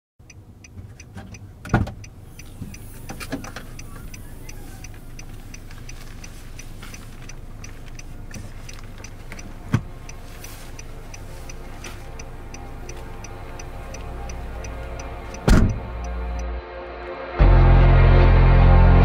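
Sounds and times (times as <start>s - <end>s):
rapid even ticking: 0.2s - 16.4s
low steady hum: 0.2s - 16.6s
heavy thump: 15.5s - 15.9s.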